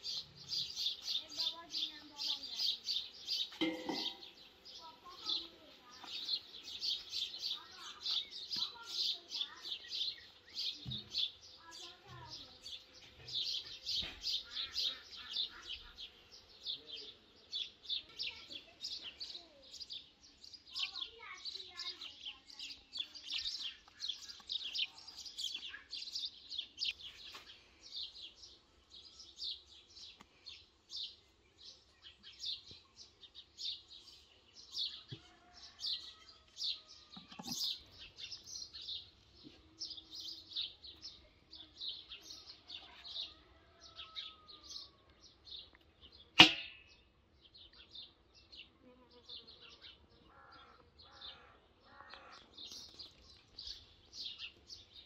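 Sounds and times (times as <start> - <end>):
birds chirping: 0.0 - 55.0
sharp knock: 46.4 - 46.8.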